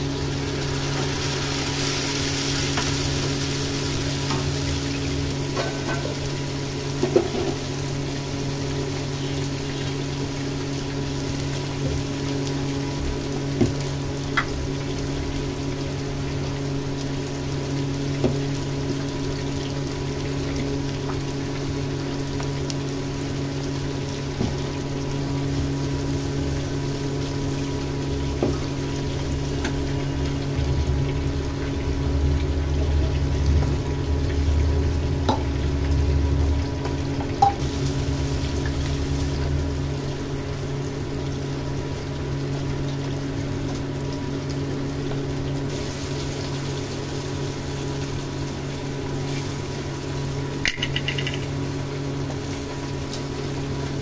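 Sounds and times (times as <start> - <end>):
food sizzling in a pan: 0.0 - 54.0
gravy bubbling: 0.0 - 54.0
steady motor hum: 0.0 - 54.0.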